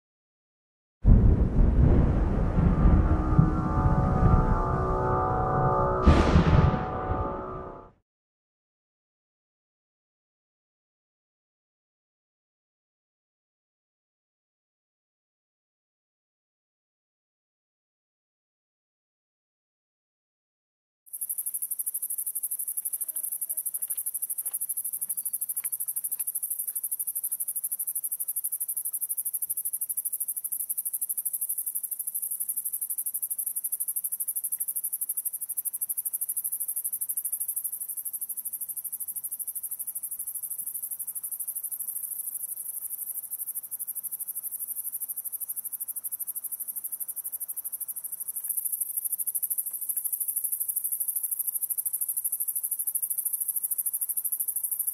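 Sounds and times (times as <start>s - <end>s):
insects trilling: 21.1s - 54.9s.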